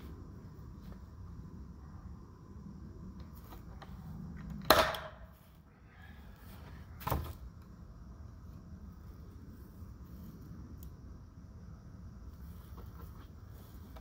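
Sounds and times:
nail gun firing crack: 4.6s - 5.2s.

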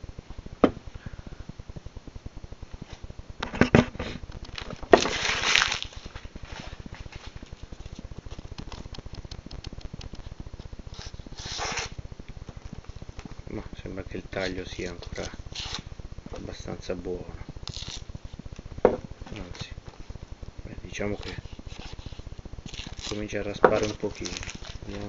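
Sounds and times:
knife blade scraping: 10.9s - 11.9s.

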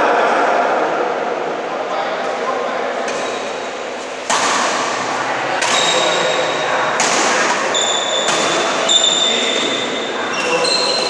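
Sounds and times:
sneakers squeaking on floor: 3.1s - 5.0s, 5.6s - 11.0s
racket hitting shuttlecock: 3.1s - 10.6s.

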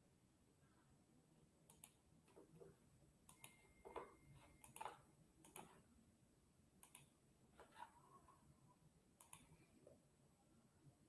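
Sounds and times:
computer mouse clicking: 1.7s - 2.0s, 3.3s - 5.7s, 6.8s - 7.1s, 9.2s - 9.6s.

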